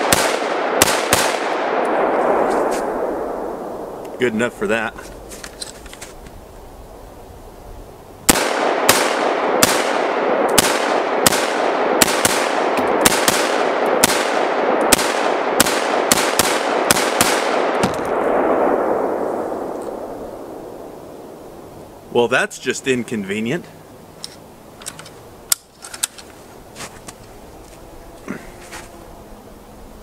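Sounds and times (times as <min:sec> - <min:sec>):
rifle shots: 0:00.0 - 0:03.2, 0:08.3 - 0:19.8
steady rush of noise: 0:00.0 - 0:30.0.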